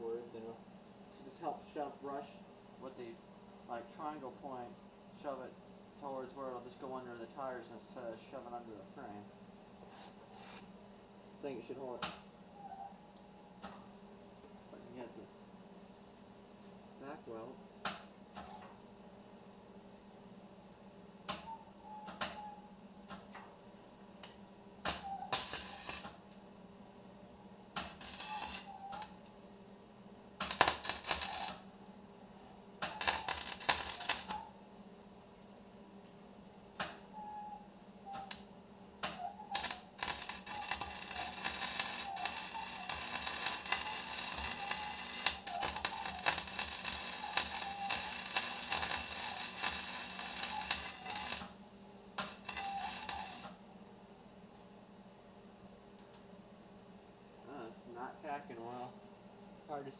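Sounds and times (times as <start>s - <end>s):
arc welder sizzling: 24.2s - 26.4s, 27.7s - 29.3s, 30.4s - 31.8s, 32.8s - 34.6s, 38.1s - 53.6s.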